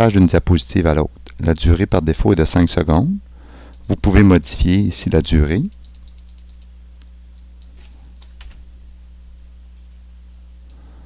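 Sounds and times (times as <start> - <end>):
low electrical hum: 0.0 - 11.0
computer mouse clicks: 5.7 - 6.7.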